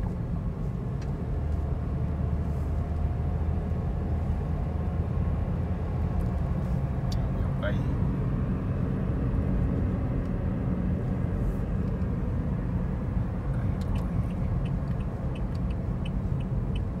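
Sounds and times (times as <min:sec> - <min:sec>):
car cabin road rumble: 0:00.0 - 0:17.0
faint light ticks: 0:13.6 - 0:16.9.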